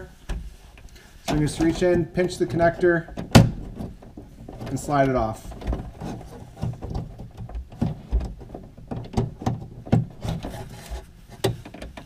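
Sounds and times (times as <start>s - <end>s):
hand clicking and knocking on sheet metal: 5.6s - 10.4s.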